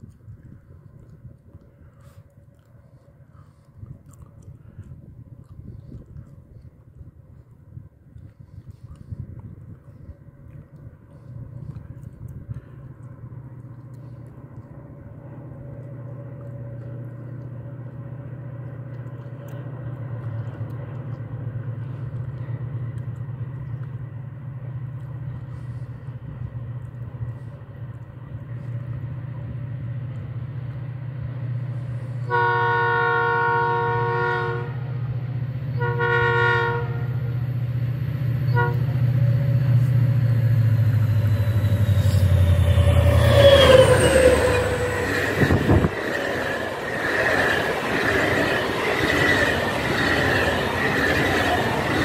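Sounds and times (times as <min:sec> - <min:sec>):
diesel locomotive engine rumble: 0:00.0 - 0:52.0
locomotive horn blasts: 0:32.3 - 0:34.8, 0:35.7 - 0:37.3, 0:38.5 - 0:39.3.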